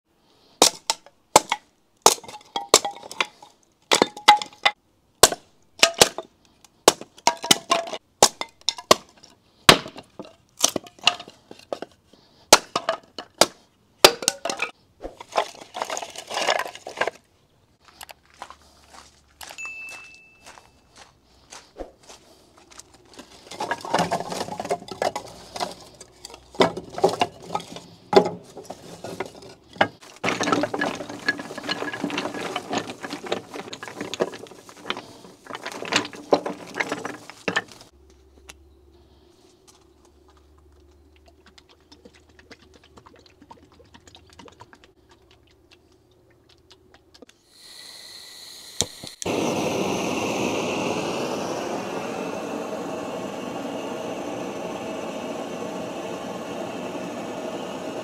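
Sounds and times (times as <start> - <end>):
firewood clattering into metal box: 0.6 - 17.2, 22.9 - 37.9
torch hissing: 47.5 - 58.0.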